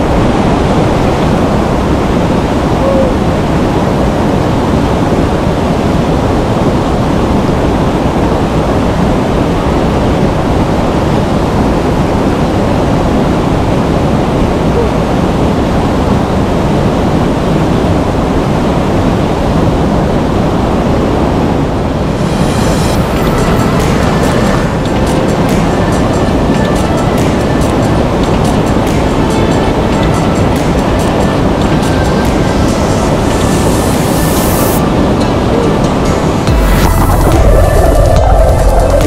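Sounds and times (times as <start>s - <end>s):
waterfall rushing: 19.5s - 39.0s.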